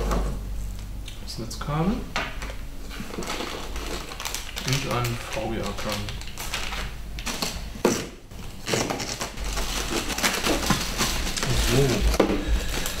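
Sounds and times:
cardboard box packaging rustling: 2.9s - 7.6s, 8.4s - 13.0s.

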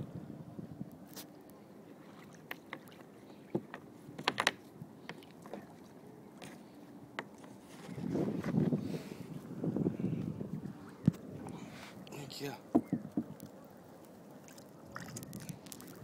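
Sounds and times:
water lapping at a kayak: 0.0s - 16.0s
light knocks against a boat: 3.5s - 4.6s, 12.7s - 13.4s.

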